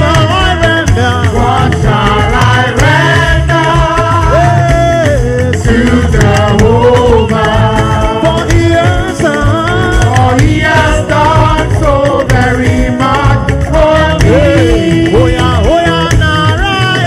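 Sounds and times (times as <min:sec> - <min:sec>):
band with drums and keyboards: 0:00.0 - 0:17.0
singers on microphones: 0:00.0 - 0:17.0.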